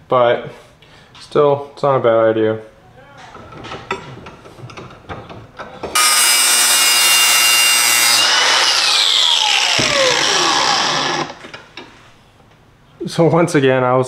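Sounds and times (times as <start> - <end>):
motor winding down: 6.0 - 11.5
angle grinder grinding steel: 6.0 - 11.6.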